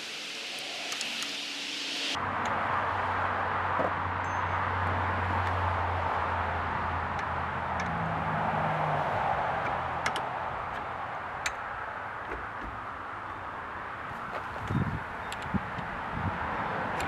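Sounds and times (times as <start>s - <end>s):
steady background hiss: 0.0s - 2.2s
light metallic clicks: 9.6s - 12.7s.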